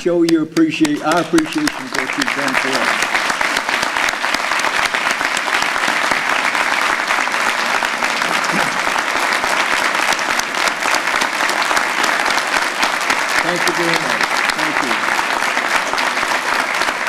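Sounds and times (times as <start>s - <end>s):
audience applause: 0.6s - 17.0s.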